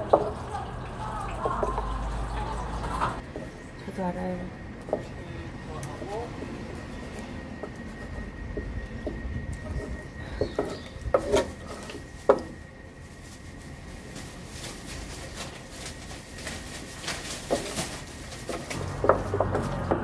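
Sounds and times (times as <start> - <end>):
utensils scraping and clinking pan: 9.6 - 12.6.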